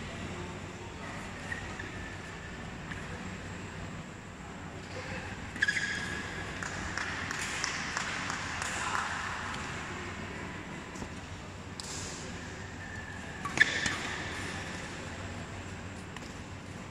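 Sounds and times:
murmur of spectators: 0.0s - 16.9s
shoe squeak on court: 5.6s - 6.4s, 12.8s - 14.6s.

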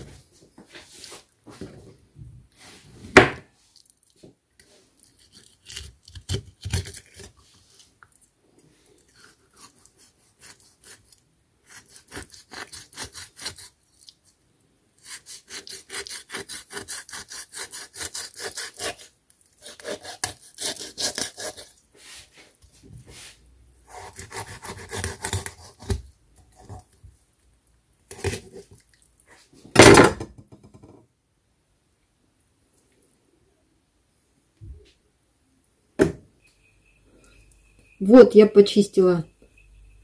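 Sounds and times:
knife scraping along fish bones: 5.0s - 7.9s, 9.1s - 14.1s, 15.0s - 21.8s, 23.9s - 26.8s.

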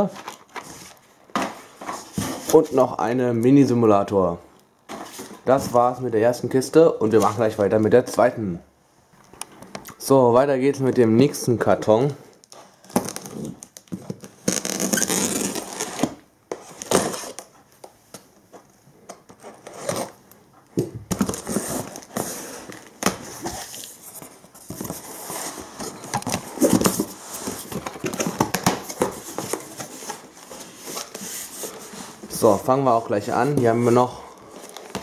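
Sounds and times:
cardboard rustling: 0.0s - 2.9s, 21.0s - 35.0s
packing tape ripping: 12.8s - 17.5s.

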